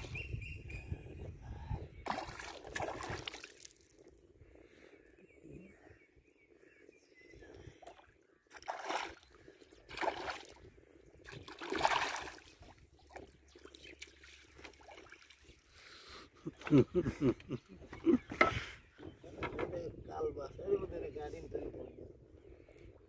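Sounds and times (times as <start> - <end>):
faint lapping water: 0.8 - 19.3
water splashing by a boat: 2.0 - 4.0, 7.8 - 15.8.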